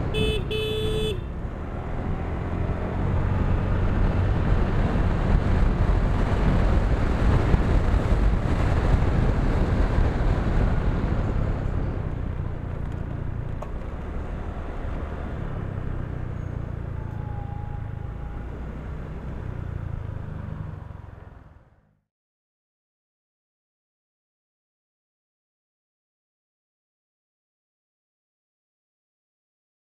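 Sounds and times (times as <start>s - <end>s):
motorcycle engine: 0.0s - 22.0s
road noise: 0.0s - 22.0s
wind buffeting microphone: 2.9s - 12.7s.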